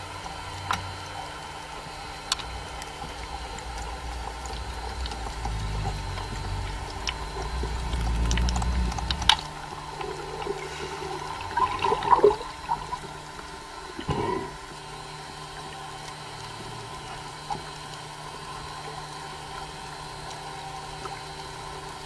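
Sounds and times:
water gurgling and splashing: 0.0 - 22.0
underwater rushing rumble: 3.9 - 15.0.

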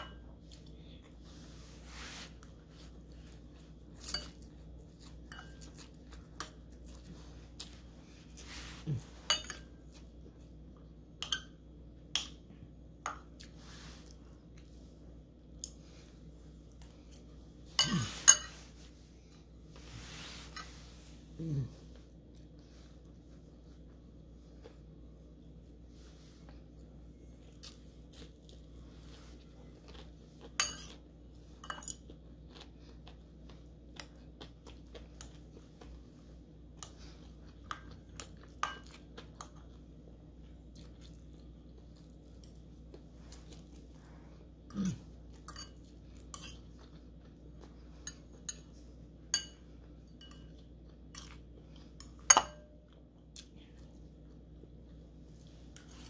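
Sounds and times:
steady low hum: 0.0 - 56.0
chewing and crunching: 2.5 - 10.9, 26.5 - 56.0
fork clinking on ceramic bowl: 5.3 - 5.8, 9.3 - 9.7, 11.2 - 11.6, 17.8 - 18.6, 30.6 - 31.0, 45.4 - 46.6, 49.3 - 49.6, 50.2 - 50.6, 52.2 - 52.7.

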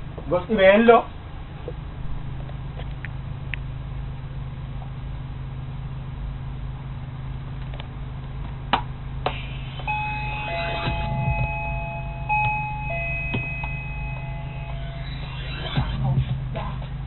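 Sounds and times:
steady low hum: 0.0 - 17.0
steady electronic tones: 9.4 - 16.0.

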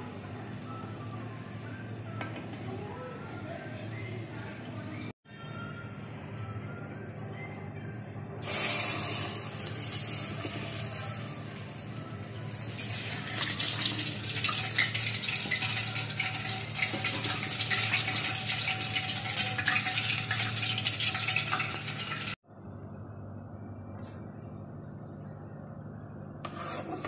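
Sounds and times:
deep-frying sizzle with crackles: 8.4 - 22.4.

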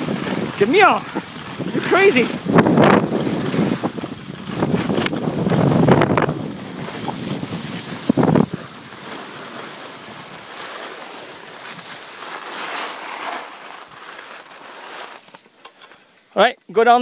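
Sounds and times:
wind buffeting microphone: 0.0 - 10.5.

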